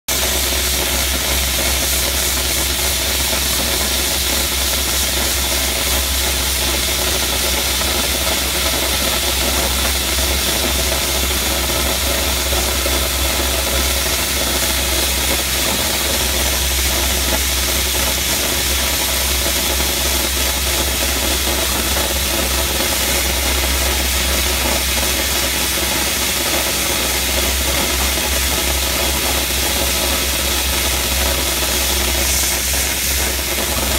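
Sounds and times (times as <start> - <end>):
dry ice blaster hissing: 0.1 - 33.9
low engine drone: 0.1 - 33.9.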